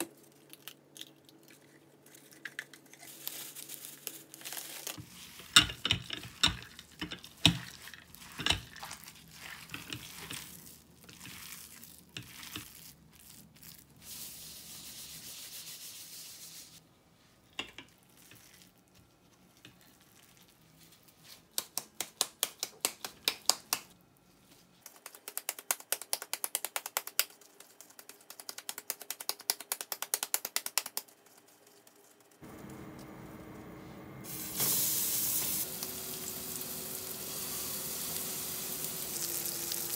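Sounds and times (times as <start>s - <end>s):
hands kneading meat squelching: 6.6s - 14.6s, 17.9s - 32.4s
patty slapping between palms: 21.4s - 23.9s, 24.8s - 31.5s
patty sizzling in a pan: 34.2s - 39.9s.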